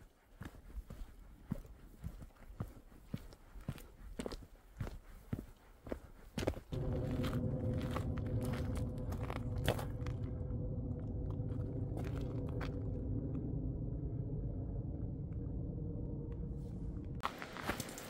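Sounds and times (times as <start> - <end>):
footsteps on a dirt trail: 0.0 - 10.4, 11.3 - 12.9
low steady rumble: 6.7 - 17.4.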